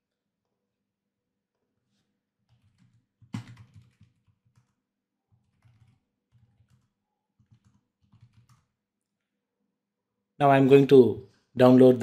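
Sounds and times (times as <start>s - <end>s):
keyboard typing: 2.5s - 8.8s.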